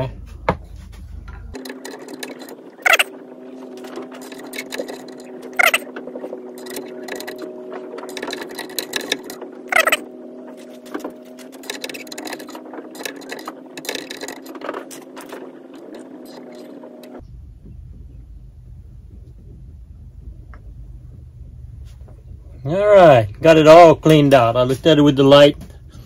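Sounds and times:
steady background hum: 0.0 - 26.0
screwdriver clicking and scraping metal: 1.6 - 3.1, 4.2 - 5.8, 6.6 - 10.0, 11.5 - 16.6
loud squeaks: 1.6 - 17.2.

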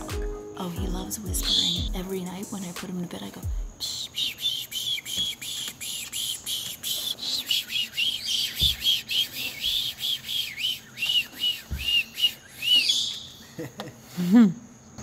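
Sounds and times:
macaw chirping: 1.0 - 2.7, 3.7 - 13.6
soft low thuds: 3.5 - 3.8.

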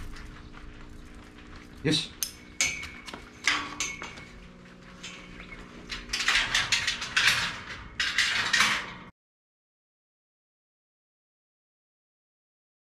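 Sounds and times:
metal dog pen rattling: 0.0 - 9.1.

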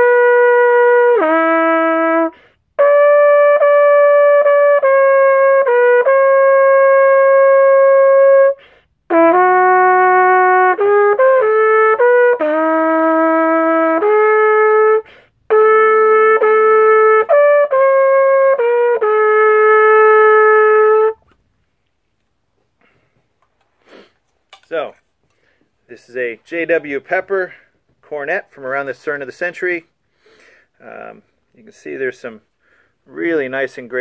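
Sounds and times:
cornet playing slow melody: 0.0 - 21.4.

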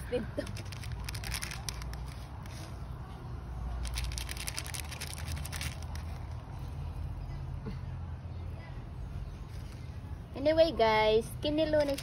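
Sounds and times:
plastic seed packet crinkling: 0.4 - 2.7, 3.8 - 6.4, 11.7 - 12.0.

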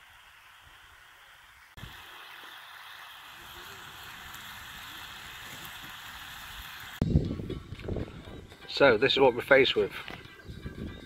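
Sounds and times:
bacon sizzling in a frying pan: 0.0 - 7.0.

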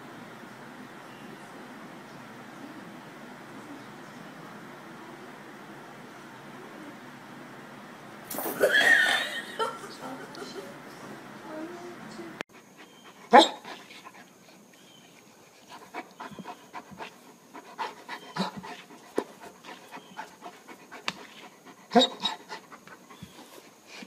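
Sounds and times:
dog panting: 12.5 - 24.0.

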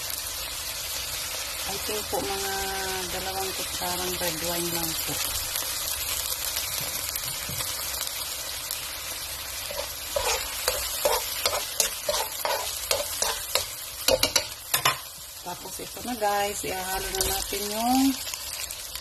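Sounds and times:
sauce sizzling in a wok: 0.0 - 19.0
spoon scraping a pan: 9.6 - 15.2.

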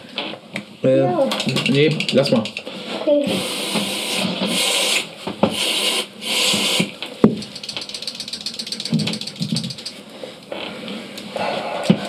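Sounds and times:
fast ratchet-like plastic clicking: 1.3 - 2.6, 6.5 - 10.0
aerosol spray hiss: 5.6 - 6.9.

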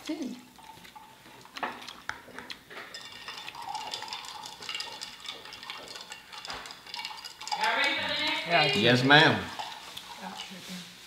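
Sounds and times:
cups and dishes clinking: 1.6 - 10.6.

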